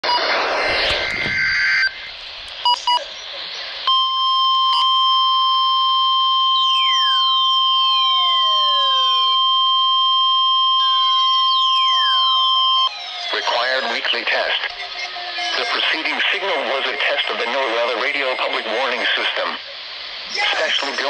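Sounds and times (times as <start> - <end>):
steady alarm tone: 3.8 - 14.0
short beeps: 3.9 - 8.2.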